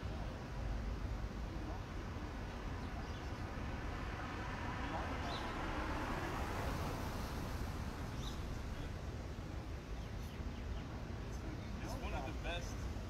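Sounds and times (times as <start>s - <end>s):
faint distant voices: 0.0s - 13.0s
low outdoor background rumble: 0.0s - 13.0s.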